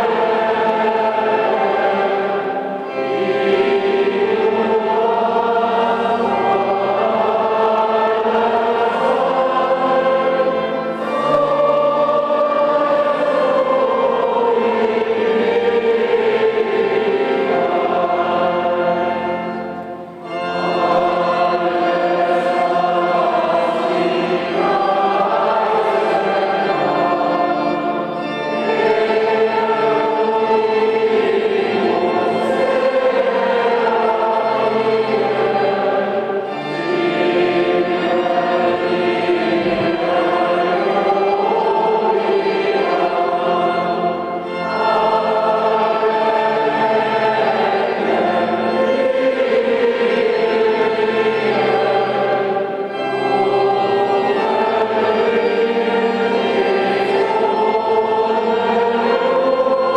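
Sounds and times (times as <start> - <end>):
choir singing sacred music: 0.0 - 59.9.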